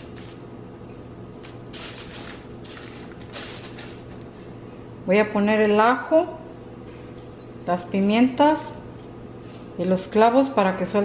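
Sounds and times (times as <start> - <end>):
foil crinkling: 0.0 - 0.4, 1.4 - 4.3.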